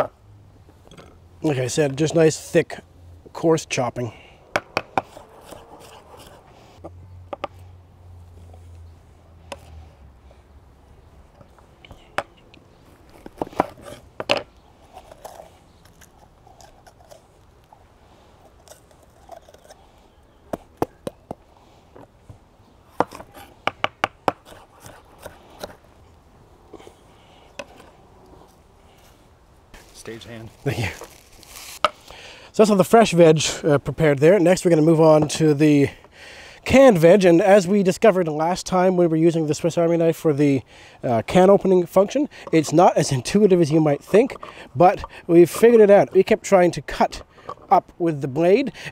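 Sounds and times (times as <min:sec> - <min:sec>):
knife chopping on wooden board: 0:04.5 - 0:06.4, 0:22.9 - 0:25.8
pepper flesh crunching: 0:14.8 - 0:21.3, 0:29.8 - 0:32.2.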